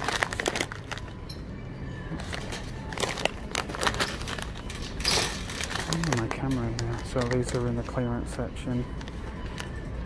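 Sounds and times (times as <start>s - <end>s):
shopping cart rattling: 2.2s - 8.7s.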